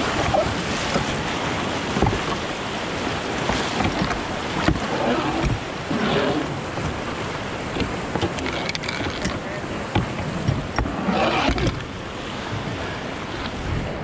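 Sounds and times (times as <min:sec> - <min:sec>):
rushing whitewater: 0:00.0 - 0:14.0
dull thumps: 0:01.9 - 0:02.6, 0:03.4 - 0:11.9.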